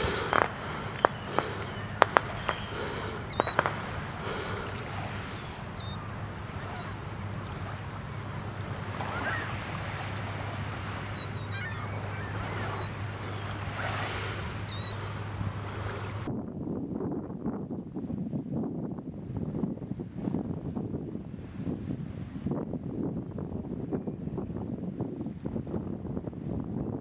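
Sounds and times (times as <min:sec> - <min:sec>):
gulls calling: 0:00.0 - 0:16.3
sharp clicks: 0:00.1 - 0:03.9.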